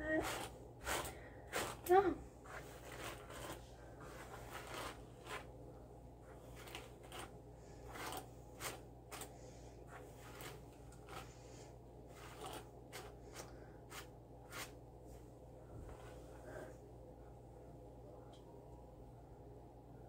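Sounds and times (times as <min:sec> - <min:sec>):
hair rustling: 0:00.0 - 0:05.6, 0:06.2 - 0:14.8
low steady hum: 0:00.0 - 0:20.0.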